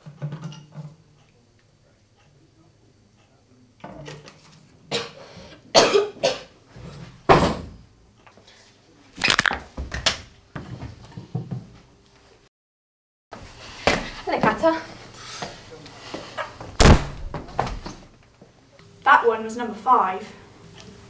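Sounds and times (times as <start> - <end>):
woman coughing and spluttering: 4.9 - 6.5.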